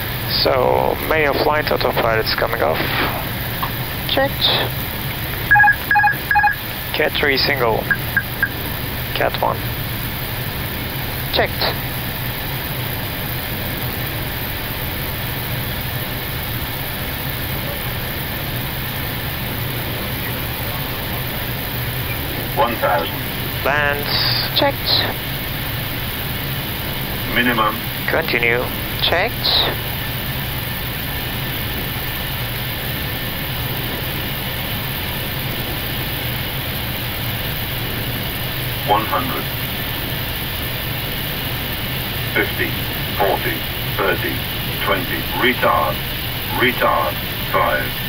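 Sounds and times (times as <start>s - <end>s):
low hum: 7.8s - 8.9s.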